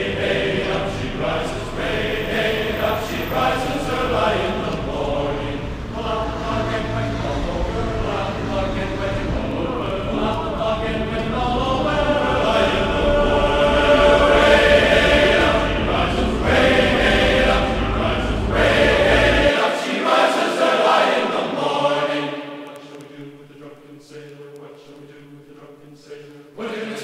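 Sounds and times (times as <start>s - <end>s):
low rumble: 0.0s - 19.5s
choir singing held notes: 0.0s - 27.0s.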